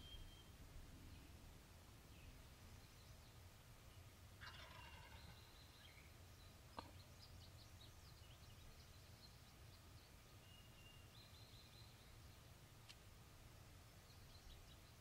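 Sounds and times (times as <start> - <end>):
birds chirping: 2.2 - 12.6.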